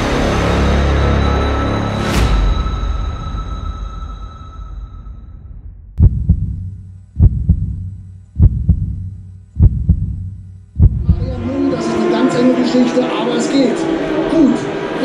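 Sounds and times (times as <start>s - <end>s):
heartbeat double thump: 6.0s - 11.4s
steady low hum: 6.0s - 11.6s.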